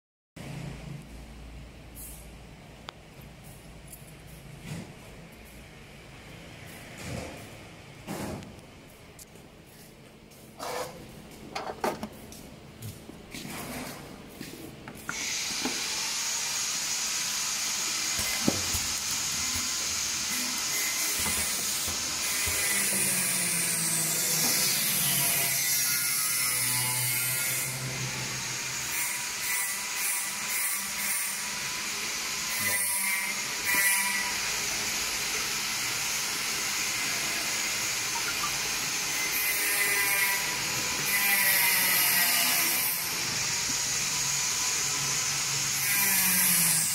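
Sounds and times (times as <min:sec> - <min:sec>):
steady machine hiss: 0:15.1 - 0:23.6.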